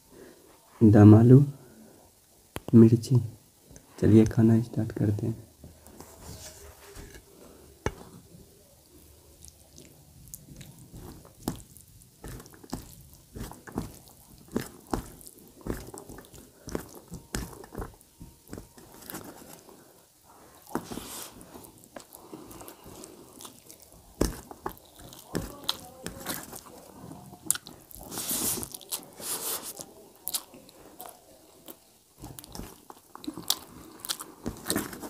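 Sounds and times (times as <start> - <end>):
fingers squishing food on plate: 8.8 - 19.8, 20.5 - 35.0
chewing: 8.8 - 35.0.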